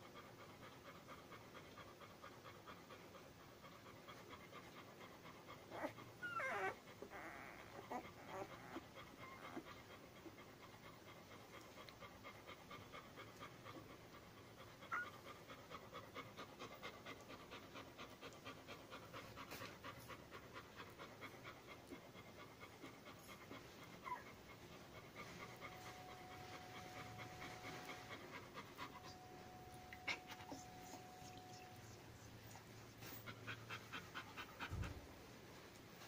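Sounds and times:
dog panting: 0.0s - 36.0s
puppies squeaking: 28.8s - 32.6s.

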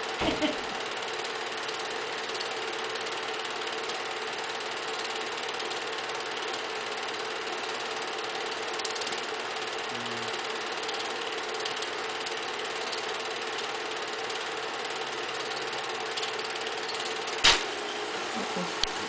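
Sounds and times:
small motor running: 0.0s - 19.0s
sharp click: 16.2s - 17.7s.

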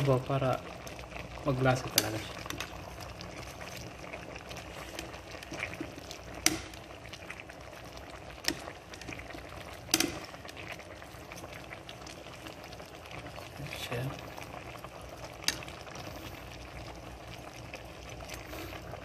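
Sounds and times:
stew bubbling in a pot: 0.0s - 19.0s
ladle scooping and pouring broth: 0.7s - 13.6s.

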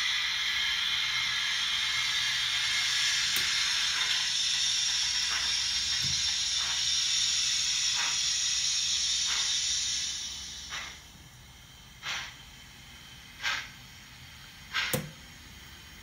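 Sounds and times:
soft locomotive chuffs: 0.0s - 16.0s
steam hiss from small speaker: 0.0s - 16.0s.

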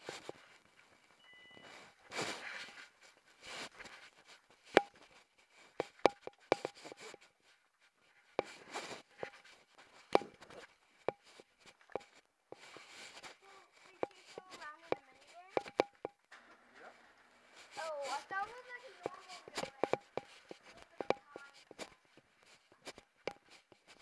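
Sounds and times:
sharp clicks and taps: 4.2s - 7.3s, 8.4s - 16.4s, 18.4s - 24.0s.

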